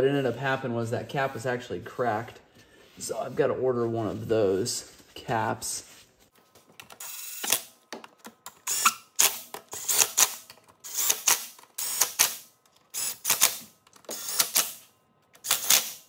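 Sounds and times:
cordless power tool driving bolts: 7.0 - 7.7, 8.5 - 14.8, 15.4 - 16.0.

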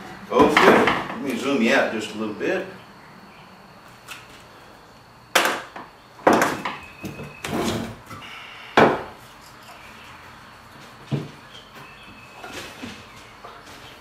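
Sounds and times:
wooden boards knocking: 0.4 - 1.2.

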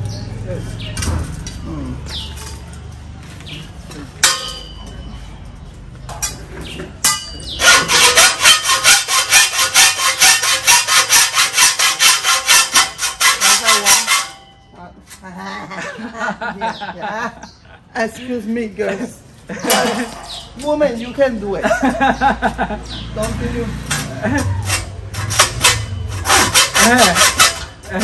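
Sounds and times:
hacksaw cutting metal: 4.2 - 4.9, 7.0 - 14.6, 23.2 - 28.0
sharp metal clanks: 4.2 - 5.2, 6.0 - 14.8, 19.6 - 20.8, 23.2 - 28.0.

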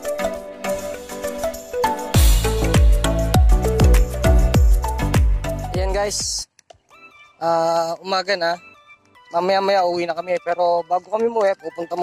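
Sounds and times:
synth melody: 0.0 - 5.8
electronic music: 0.0 - 6.4
deep kick drum: 2.2 - 6.4.

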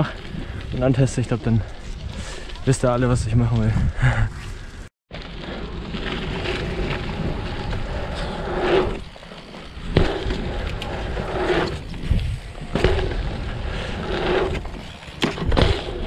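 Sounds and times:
bike tyres rolling over dirt: 0.0 - 4.2, 5.1 - 16.0.

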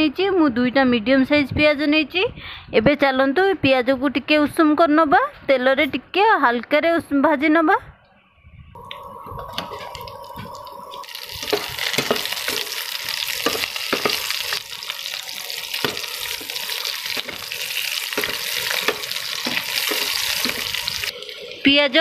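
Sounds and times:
onion sizzling in hot oil: 8.8 - 22.0
metal spatula scraping a pan: 11.4 - 21.1.

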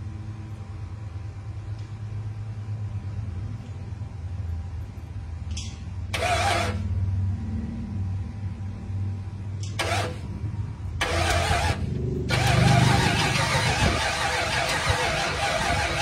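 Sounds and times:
car engine running: 6.0 - 16.0.

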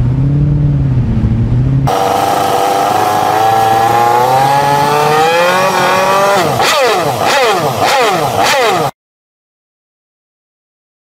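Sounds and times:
motorcycle engine running: 0.0 - 9.0.

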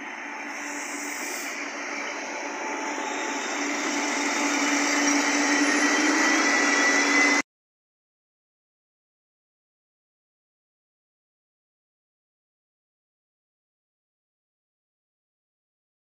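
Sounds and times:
diesel railcar passing: 0.0 - 7.4
high whine: 0.0 - 7.4
train wheel noise: 0.0 - 7.4.

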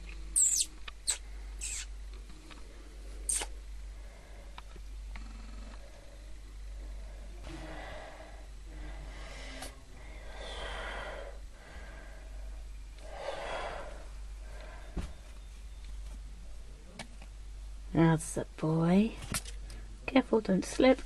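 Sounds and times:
steady low hum: 0.0 - 21.0
slow breathing: 3.8 - 4.8, 5.8 - 15.4.

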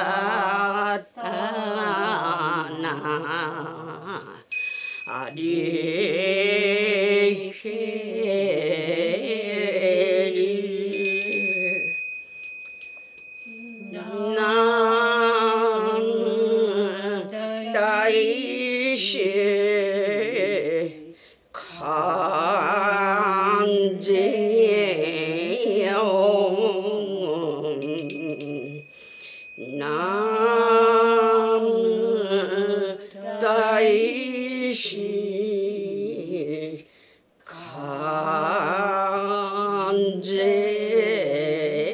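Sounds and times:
voices singing a hymn: 0.0 - 4.4, 5.1 - 11.9, 13.5 - 28.8, 29.6 - 36.9, 37.5 - 41.9
small bells ringing: 4.5 - 5.5, 10.9 - 15.3, 27.8 - 31.2.

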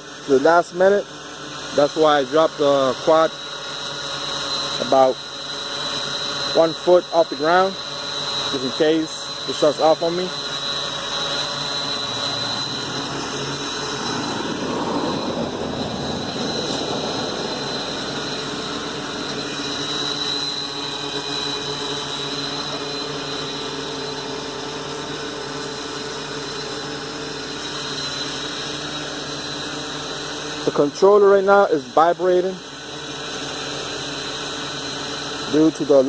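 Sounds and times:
quadcopter motors humming: 0.0 - 36.0.

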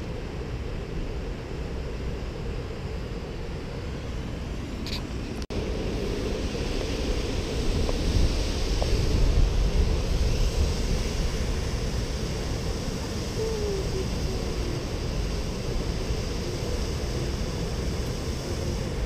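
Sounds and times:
wind buffeting microphone: 5.3 - 19.0.

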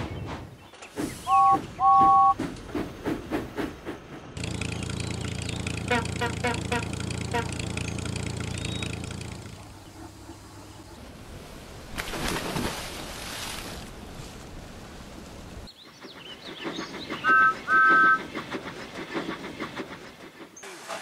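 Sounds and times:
train wheels clacking on rails: 0.0 - 8.2, 15.8 - 20.7
train whistle toots: 1.3 - 2.4, 17.2 - 18.3.

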